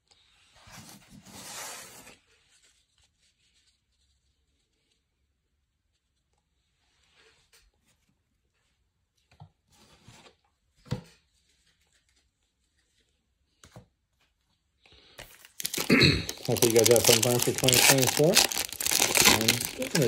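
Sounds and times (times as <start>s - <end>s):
cards and packaging rustling: 15.2s - 20.0s.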